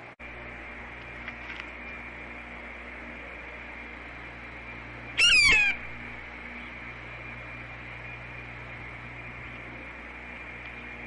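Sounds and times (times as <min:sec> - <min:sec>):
steady hum and hiss: 0:00.0 - 0:11.0
blue jay harsh call: 0:05.1 - 0:06.2.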